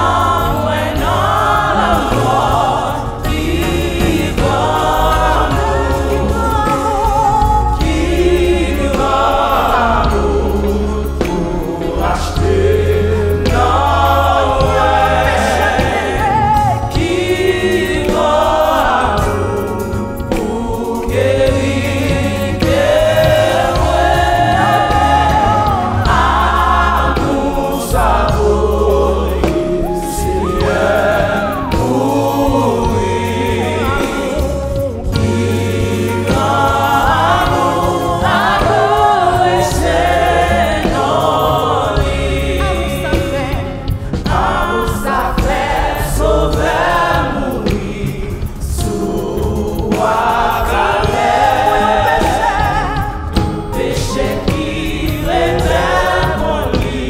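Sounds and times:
choir singing: 0:00.0 - 0:57.0
keyboard with low bass: 0:00.0 - 0:57.0
woman singing lead: 0:05.5 - 0:08.4, 0:29.4 - 0:35.9.

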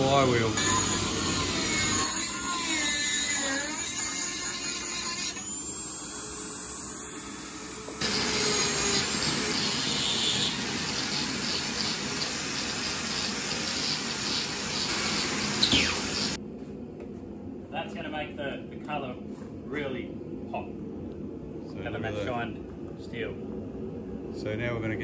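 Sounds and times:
angle grinder grinding steel: 0:00.0 - 0:16.4
rotary tool wire wheel whine: 0:00.0 - 0:16.4.

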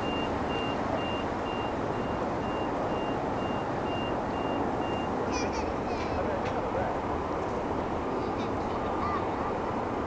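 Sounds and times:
vehicle reversing alarm beeping: 0:00.0 - 0:05.3.

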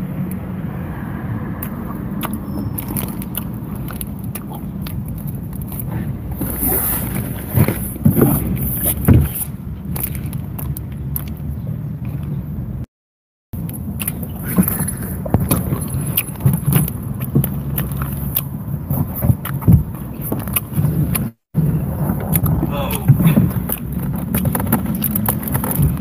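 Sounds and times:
chewing chocolate bar: 0:01.6 - 0:05.9, 0:14.0 - 0:18.6.

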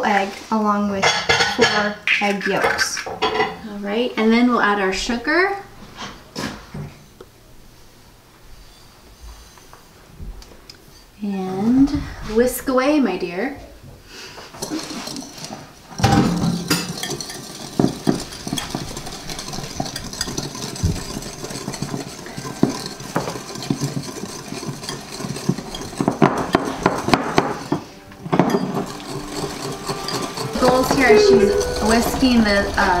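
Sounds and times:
whisk clicking against bowl: 0:16.6 - 0:27.8, 0:28.5 - 0:31.3.

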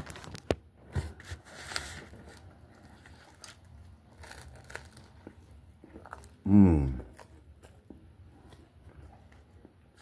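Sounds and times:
biting into toasted sandwich: 0:02.9 - 0:07.9.

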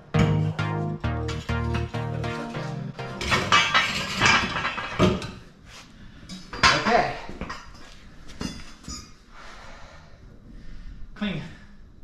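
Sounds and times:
sharp metal knocks: 0:03.0 - 0:05.3.

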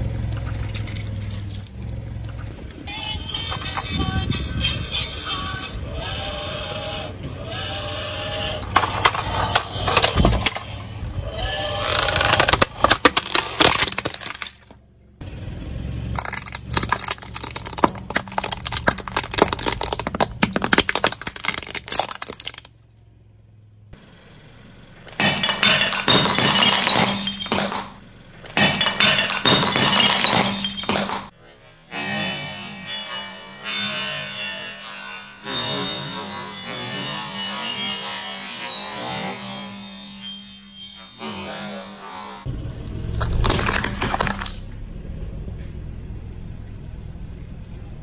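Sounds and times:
tyre crushing brittle things: 0:11.7 - 0:14.8, 0:16.2 - 0:22.8, 0:43.2 - 0:44.6.

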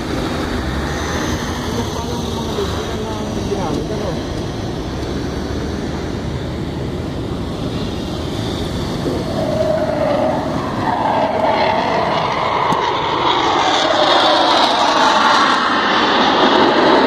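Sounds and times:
jet aircraft roar overhead: 0:00.0 - 0:17.0
motorcycles passing: 0:00.0 - 0:17.0
vehicles rumbling past: 0:00.0 - 0:17.0.

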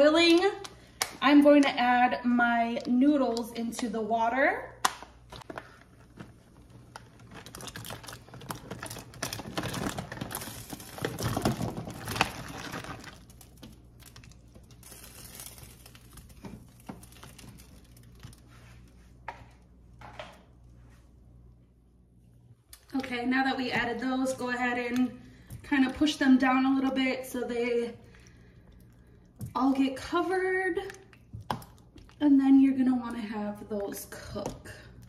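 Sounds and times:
dry pasta pouring into pot: 0:07.2 - 0:18.4.

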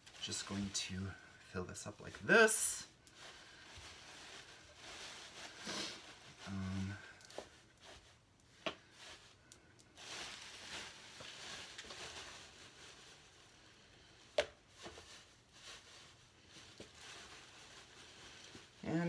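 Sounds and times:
plastic bag crinkling: 0:00.0 - 0:19.0
shredded paper rustling: 0:09.9 - 0:13.6.

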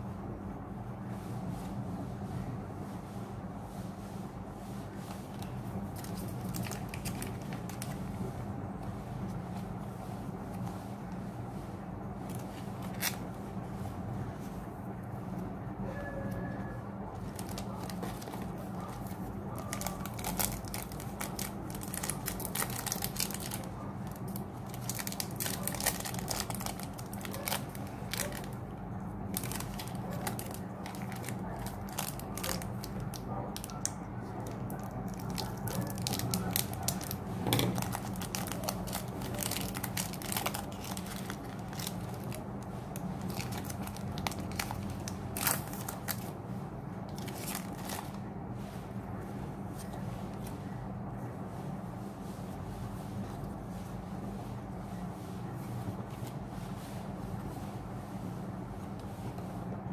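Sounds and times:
steady low hum: 0:00.0 - 0:59.9
foil wrappers crinkling: 0:05.2 - 0:08.2, 0:12.2 - 0:13.3, 0:17.2 - 0:46.4, 0:47.1 - 0:48.3.

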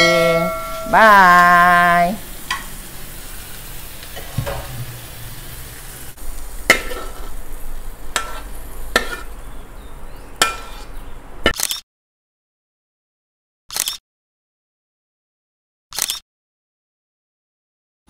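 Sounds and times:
metal spatula scraping wok: 0:00.0 - 0:00.9, 0:06.6 - 0:09.6, 0:10.4 - 0:11.0
sharp ringing clanks: 0:00.0 - 0:00.9
faint sizzle: 0:00.0 - 0:11.2.

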